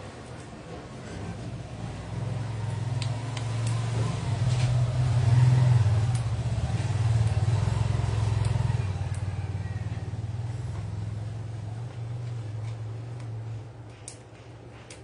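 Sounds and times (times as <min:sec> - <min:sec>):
motor engine droning: 0:01.7 - 0:13.6.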